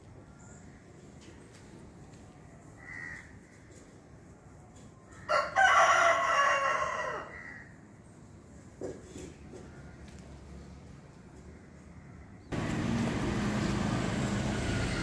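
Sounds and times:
rooster crowing: 5.3s - 7.6s.

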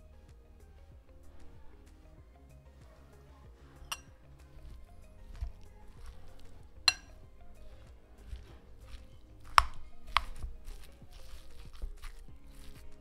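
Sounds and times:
soft squishing: 0.0s - 13.0s
spoon clinking on glass: 6.9s - 7.3s.

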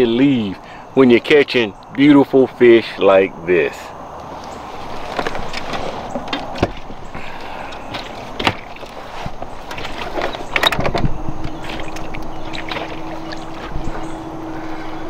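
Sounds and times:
steady background noise: 0.0s - 15.0s
steady low hum: 0.0s - 15.0s
knocks and clicks in aluminum boat: 5.1s - 14.4s.

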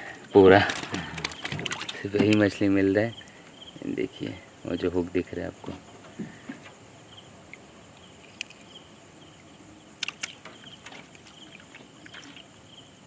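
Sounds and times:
insects chirping: 0.0s - 13.0s
clicks and knocks on wooden boat: 0.7s - 2.6s, 10.0s - 12.4s.

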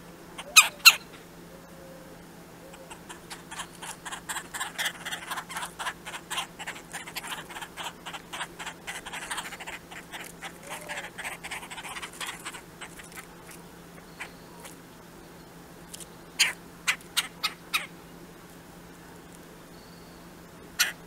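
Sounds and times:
woodpeckers calling harsh notes: 0.4s - 1.2s, 2.6s - 14.8s, 15.8s - 18.0s, 20.1s - 21.0s.

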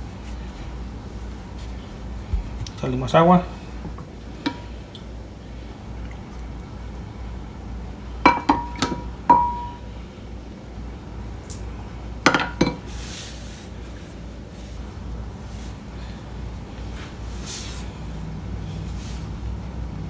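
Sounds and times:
kitchenware clinking: 8.2s - 9.8s.

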